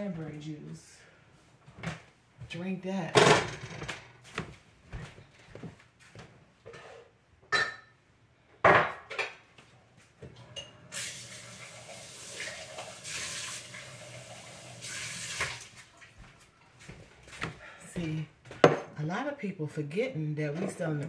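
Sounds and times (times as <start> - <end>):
dishes and glassware clinking: 6.7 - 8.0, 10.4 - 10.9
running water: 10.9 - 16.3.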